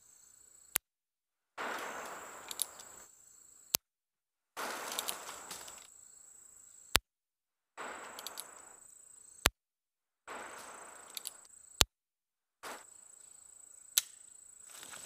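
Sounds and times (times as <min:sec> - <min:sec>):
high insect drone: 0:00.0 - 0:00.8, 0:01.7 - 0:03.7, 0:04.6 - 0:07.0, 0:07.8 - 0:09.5, 0:10.3 - 0:11.8, 0:12.7 - 0:15.0.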